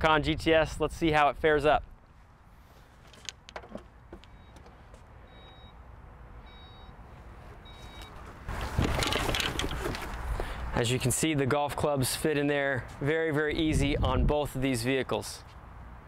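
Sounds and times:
short high beeps: 5.3 - 5.8, 6.4 - 7.0, 7.6 - 8.2
golf clubs clattering: 8.5 - 10.4.

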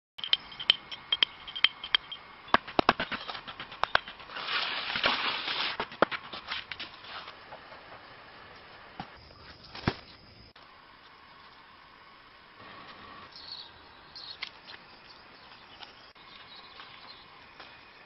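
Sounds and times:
rustle of leaves and branches: 4.1 - 11.8.

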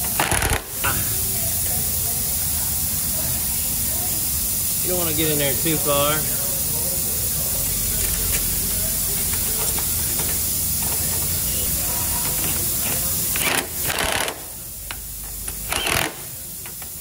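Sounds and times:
pneumatic impact wrench bursts: 0.0 - 2.0, 8.0 - 17.0
air hiss: 0.0 - 17.0.

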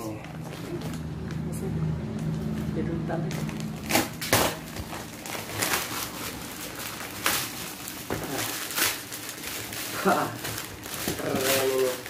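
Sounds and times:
wrapping paper tearing and crinkling: 3.3 - 12.0.

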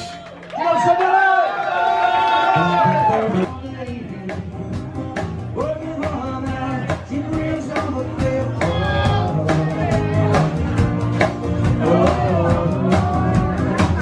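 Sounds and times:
man singing: 2.6 - 14.0
drum kit with cymbals: 3.2 - 14.0.

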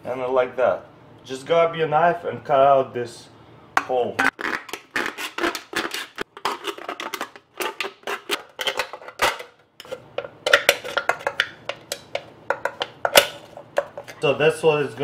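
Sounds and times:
knife cutting aluminium can: 4.2 - 11.4.

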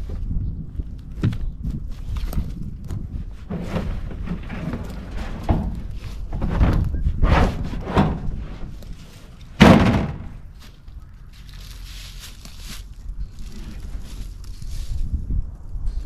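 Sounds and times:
wind rumble on microphone: 0.0 - 16.0
plastic tank in metal cage knocking: 9.6 - 10.4
tank set down with thunk: 9.6 - 10.4.

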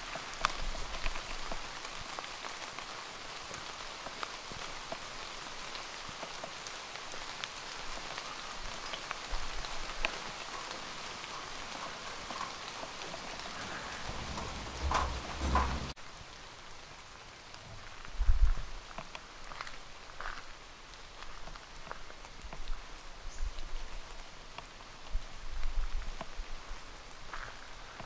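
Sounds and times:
rain on foliage: 0.0 - 28.0
raindrops ticking: 0.0 - 28.0.

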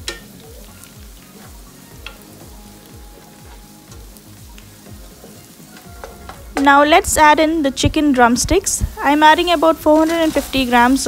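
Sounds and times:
onions frying in oil: 0.0 - 11.0
soft background music: 0.0 - 11.0
wooden spatula scraping pan: 8.9 - 11.0.

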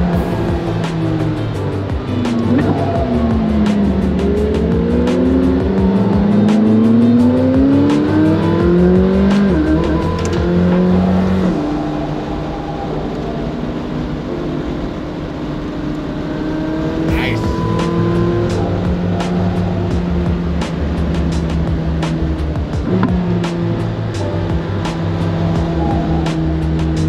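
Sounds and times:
background music: 0.0 - 15.6, 16.6 - 27.0
sports car engine accelerating: 0.0 - 27.0.

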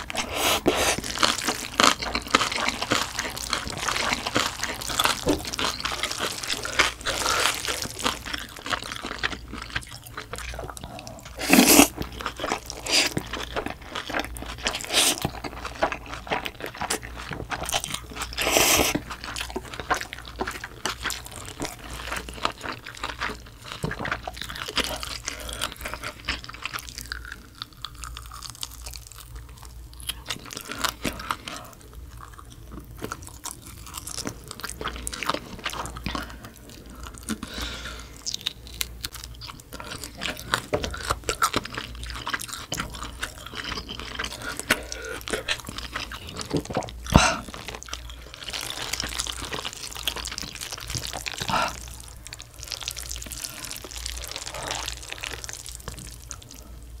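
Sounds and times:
noodle slurp: 0.0 - 1.1, 11.3 - 12.0, 14.8 - 15.3, 18.4 - 19.0
chewing and crunching noodles: 0.0 - 57.0.

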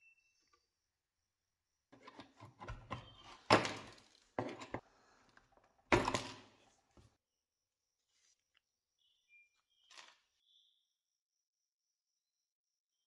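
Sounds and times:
metal tool scraping wood: 2.0 - 4.8.

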